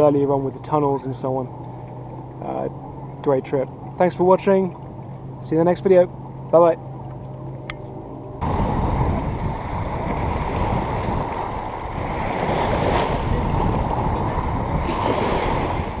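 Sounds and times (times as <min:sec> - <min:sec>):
small waves lapping: 0:00.0 - 0:16.0
wind on microphone: 0:08.4 - 0:16.0.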